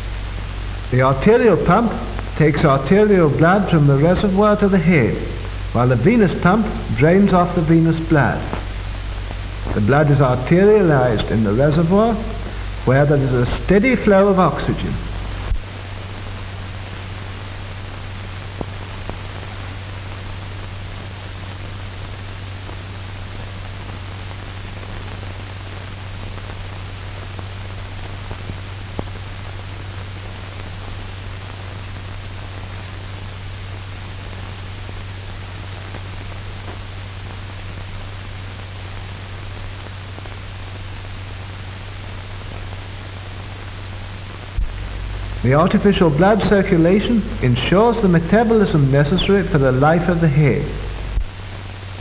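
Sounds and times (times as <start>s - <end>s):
low hum: 0.0s - 19.6s, 42.8s - 52.0s
film soundtrack hiss: 0.0s - 52.0s.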